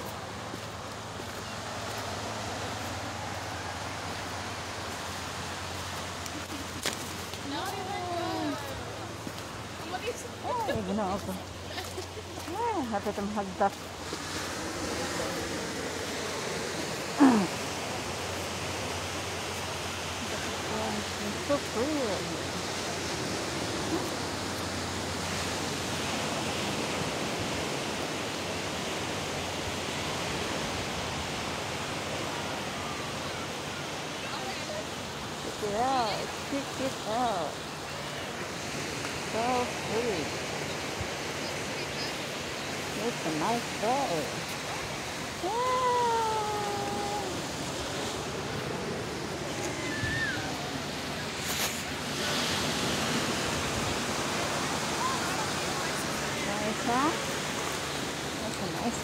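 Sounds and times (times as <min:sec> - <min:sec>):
ocean surf breaking on a beach: 0:00.0 - 0:59.0.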